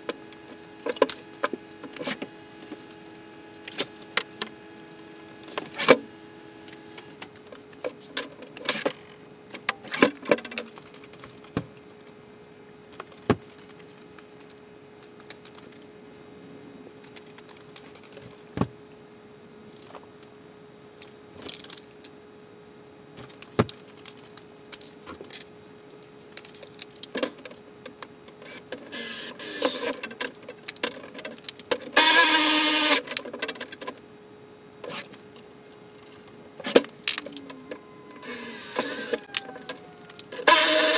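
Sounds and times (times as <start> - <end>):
faint steady hum: 0.0 - 40.9
loud rasping noise: 37.7 - 40.9.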